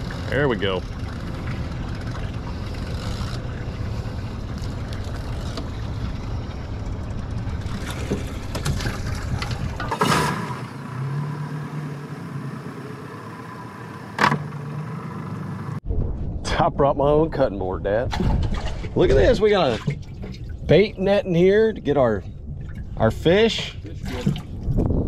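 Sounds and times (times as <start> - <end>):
dense low rumble: 0.0 - 12.6, 15.7 - 25.0
outboard motor idling: 0.0 - 15.8.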